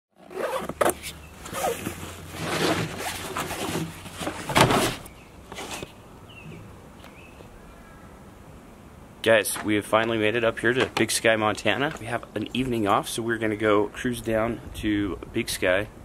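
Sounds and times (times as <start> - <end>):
zipper on gear bag: 0.2 - 4.0
fabric rustling: 0.2 - 6.0.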